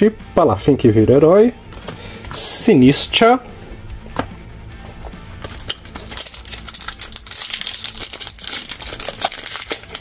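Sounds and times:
foil wrapper tearing and crinkling: 0:05.4 - 0:10.0.

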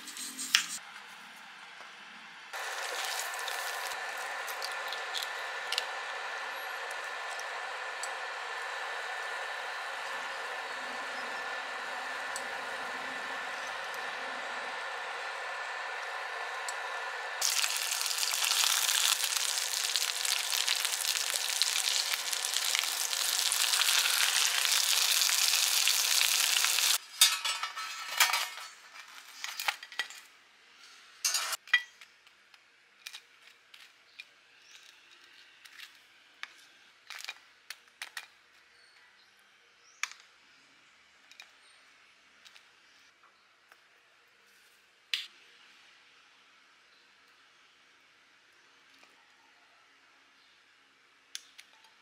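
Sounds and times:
eggs sizzling in hot oil: 0:02.6 - 0:12.8, 0:13.4 - 0:27.0.

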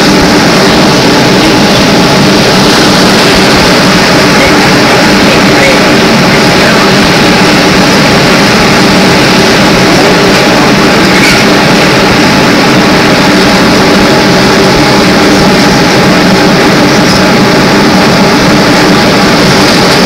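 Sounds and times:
electric motor hum: 0:00.0 - 0:20.0.

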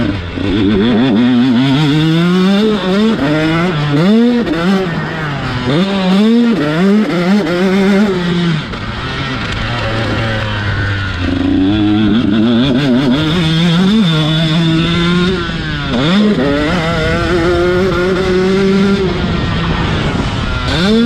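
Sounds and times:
motocross engine revving: 0:00.0 - 0:21.0.

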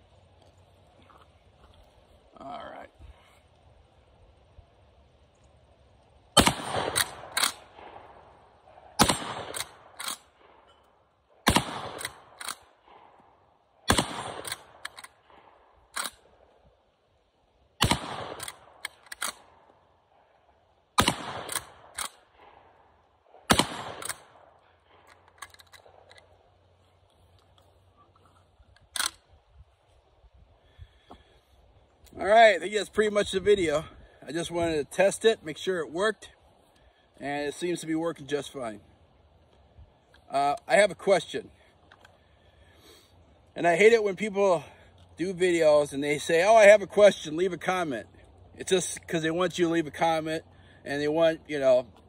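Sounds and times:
shotgun shots: 0:06.4 - 0:10.6, 0:11.4 - 0:13.1, 0:13.8 - 0:16.2, 0:17.8 - 0:19.6, 0:21.0 - 0:22.7, 0:23.4 - 0:25.0
shotgun lever clacks: 0:15.9 - 0:16.2, 0:18.4 - 0:19.4, 0:25.1 - 0:26.2, 0:28.8 - 0:29.2.

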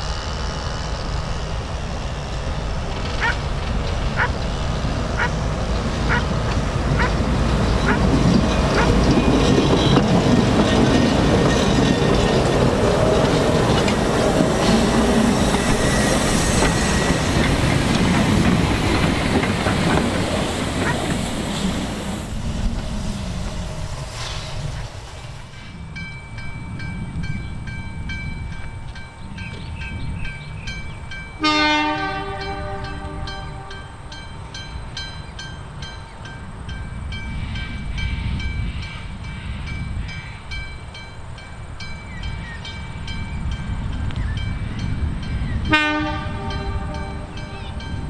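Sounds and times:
locomotive whistle blasts: 0:31.4 - 0:33.9, 0:45.7 - 0:47.6.

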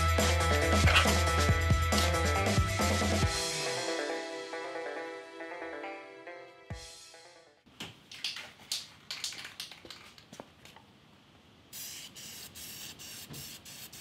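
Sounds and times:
sharp clicks and rustles: 0:08.1 - 0:10.8
spray paint can hissing: 0:11.7 - 0:14.0.

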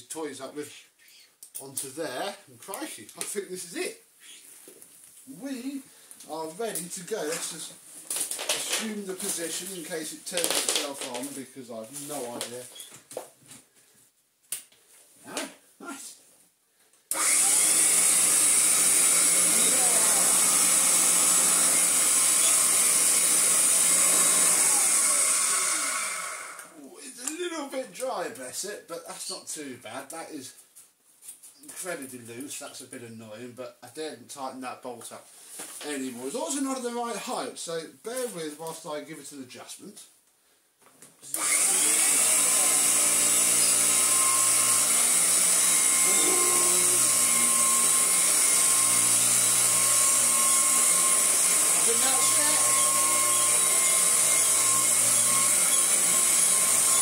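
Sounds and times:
vacuum cleaner running: 0:17.1 - 0:26.8, 0:41.3 - 0:57.0.

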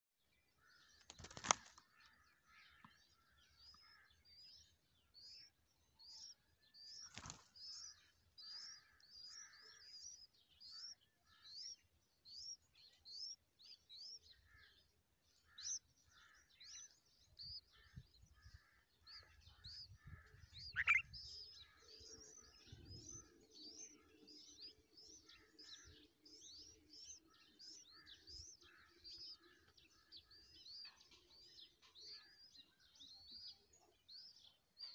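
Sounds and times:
nestlings begging chirps: 0:06.0 - 0:11.0, 0:19.3 - 0:30.8.

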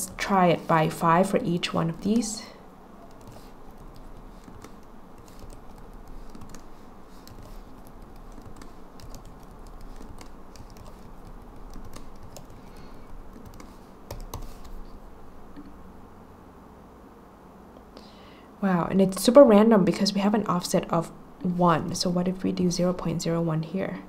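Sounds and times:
keyboard typing: 0:00.0 - 0:15.0.

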